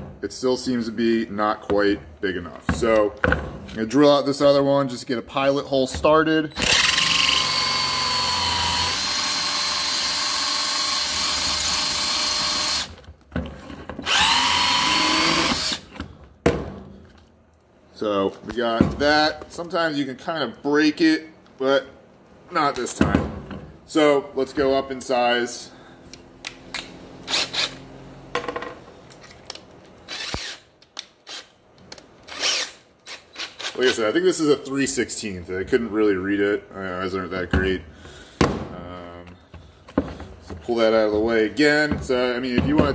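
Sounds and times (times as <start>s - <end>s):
cordless drill boring into metal: 6.6s - 13.0s, 14.0s - 15.9s, 27.3s - 27.8s, 30.1s - 30.6s, 32.3s - 33.8s.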